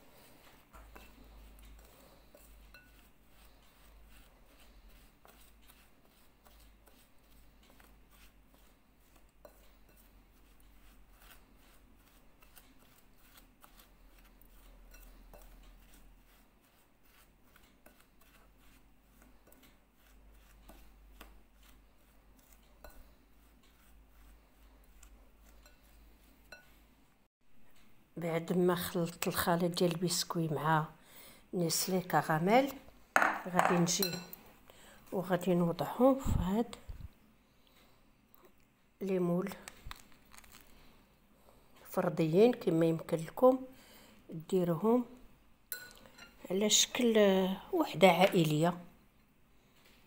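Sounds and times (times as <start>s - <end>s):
metal spoon scraping glass bowl: 0.8s - 20.9s, 21.6s - 26.8s, 33.2s - 34.4s, 45.7s - 47.1s.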